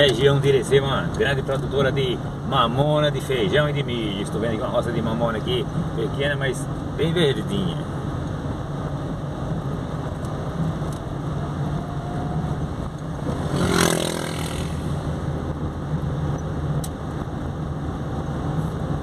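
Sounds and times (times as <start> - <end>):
car engine and tyre noise: 0.0 - 19.0
motorcycle passing by: 13.2 - 15.3.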